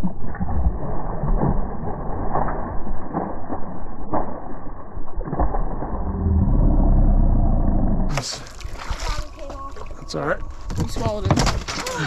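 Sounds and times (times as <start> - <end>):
fish splashing at water surface: 8.1 - 10.0.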